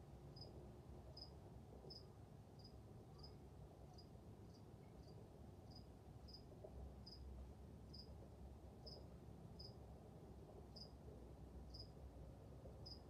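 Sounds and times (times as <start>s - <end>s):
insect chirping: 0.3s - 0.5s, 1.9s - 3.4s, 4.0s - 6.4s, 7.0s - 7.2s, 7.9s - 8.1s, 9.6s - 9.8s, 10.7s - 11.0s, 11.7s - 11.9s.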